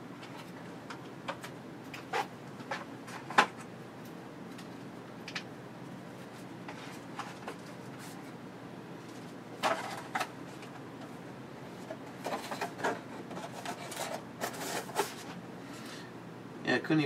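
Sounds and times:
low steady hum: 0.0 - 17.0
rummaging in cardboard box: 11.7 - 15.4.

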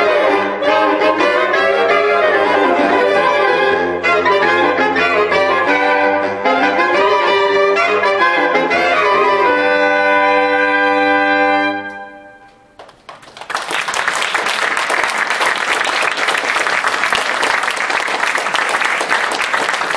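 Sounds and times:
saxophone quartet playing: 0.0 - 12.7
audience applause: 12.8 - 19.9.

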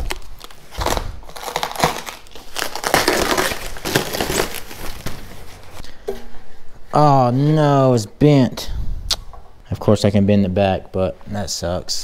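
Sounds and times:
packing wrap and cardboard crinkling: 0.0 - 5.8.

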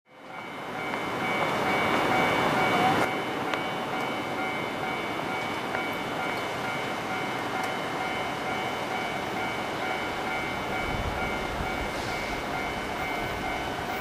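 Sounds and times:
freight train rushing rumble: 0.1 - 14.0
steady high tones: 0.2 - 14.0.

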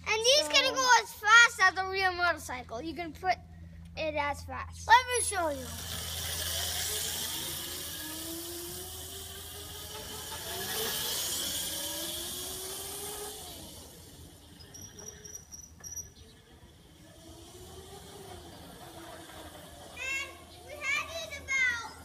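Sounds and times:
electric motors whining: 5.0 - 22.0.

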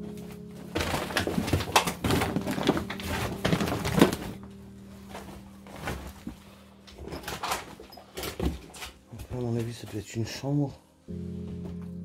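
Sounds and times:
footsteps on rubble: 0.0 - 10.1
loose debris clattering: 0.3 - 4.5.

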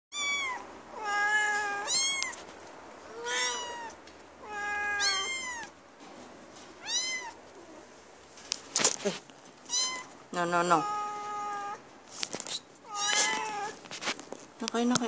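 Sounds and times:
young animals mewing: 12.9 - 13.8.

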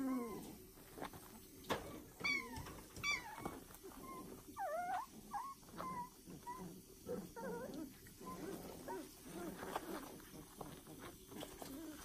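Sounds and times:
puppies whining and squeaking: 0.0 - 0.6, 1.8 - 12.0
puppies growly grumbling: 0.0 - 1.0, 1.8 - 12.0
puppies yelping: 2.2 - 11.0.

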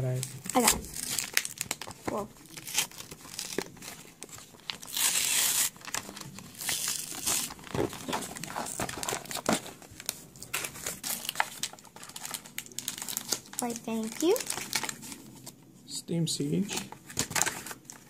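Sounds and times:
plastic crinkling: 0.1 - 15.6, 16.7 - 18.0
paper card tearing: 4.7 - 7.6.

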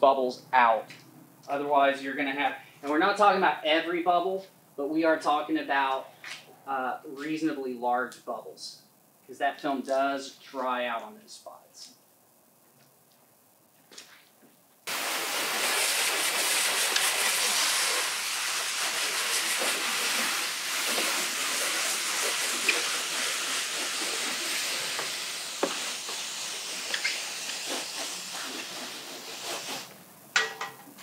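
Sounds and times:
spray wand hissing: 14.9 - 30.2.

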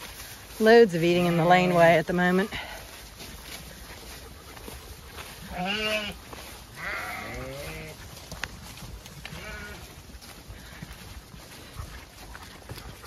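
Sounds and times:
flock rustling through grass: 0.0 - 13.0
sheep bleating: 5.4 - 6.2, 6.8 - 8.0, 9.2 - 10.0.

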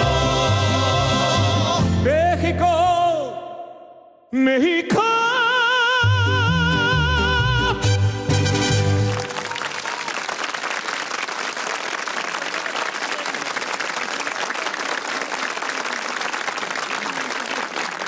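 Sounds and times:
audience applauding: 8.7 - 18.0.

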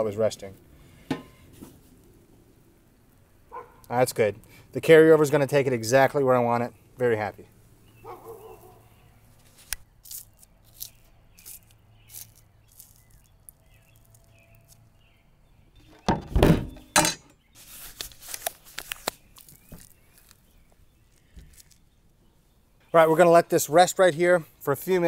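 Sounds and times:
crackly rustling: 0.4 - 4.6, 6.9 - 15.2, 17.5 - 23.2
clunk in a metal pan: 16.0 - 17.3
rubber gloves snapping: 17.9 - 20.5.

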